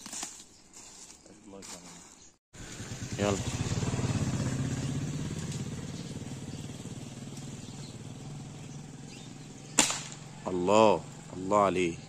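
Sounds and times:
motorcycle engine running: 2.6s - 12.0s.

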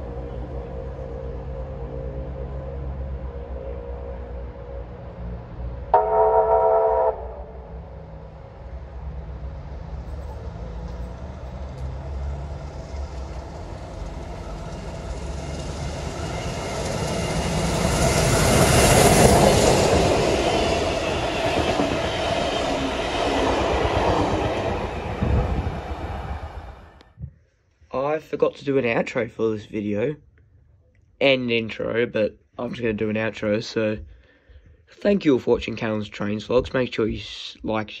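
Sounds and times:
steam train passing on rails: 0.0s - 27.0s.

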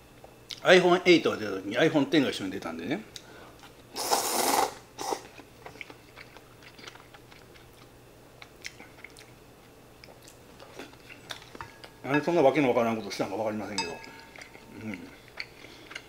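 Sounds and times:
noodles slurped: 4.0s - 5.3s
quiet chewing: 5.0s - 12.0s, 14.0s - 16.0s.

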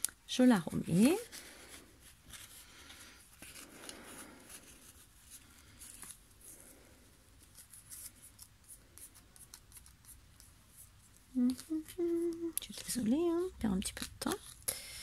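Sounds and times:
paper rustling: 0.8s - 13.0s.

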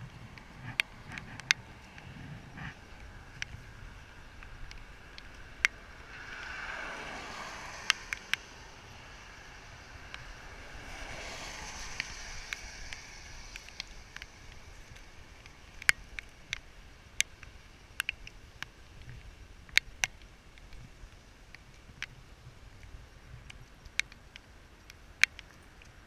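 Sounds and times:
tyres hissing on wet pavement: 0.0s - 18.0s
sharp clicks: 22.8s - 26.0s.

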